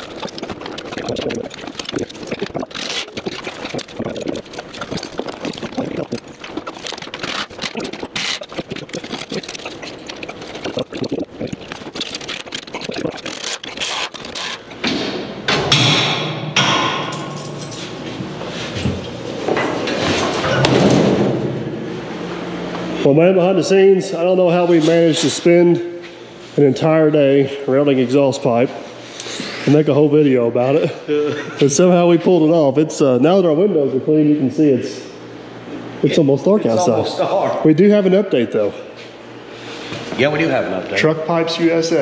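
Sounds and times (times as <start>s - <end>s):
mechanical hum with hiss: 0.0s - 42.0s.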